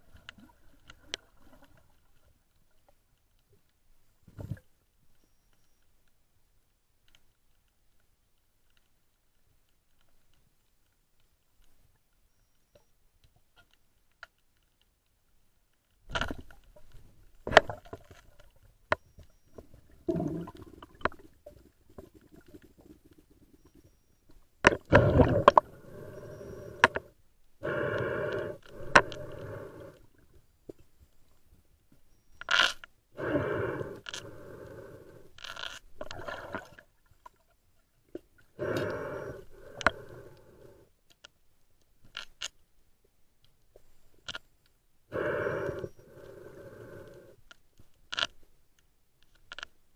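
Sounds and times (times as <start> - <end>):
underwater noisy rushes: 24.8 - 27.0.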